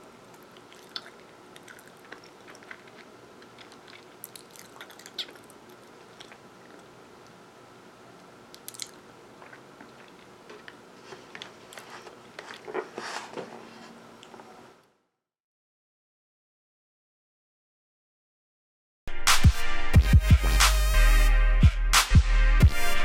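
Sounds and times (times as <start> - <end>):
chewing bread with mouth clicks: 0.3 - 7.3, 8.5 - 12.8.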